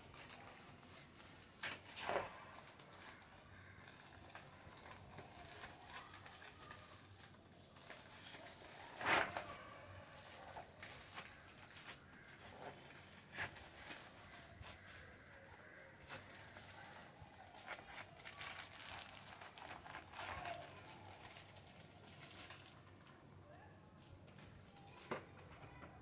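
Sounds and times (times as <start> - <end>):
cardboard packaging rustling: 0.0 - 23.3.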